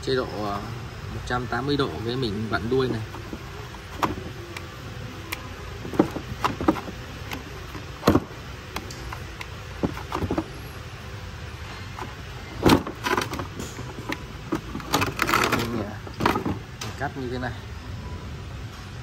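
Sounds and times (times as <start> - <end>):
plastic clicks and knocks: 5.3 - 10.5.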